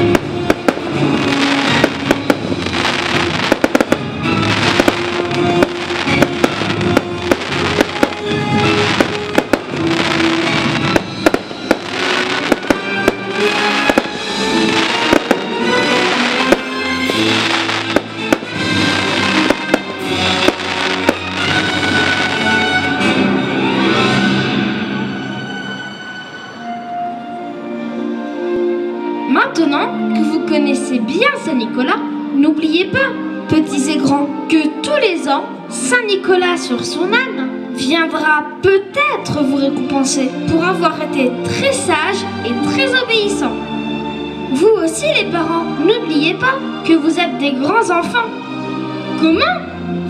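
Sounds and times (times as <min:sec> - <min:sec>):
fireworks bangs and crackles: 0:00.0 - 0:22.7
background music: 0:00.0 - 0:50.0.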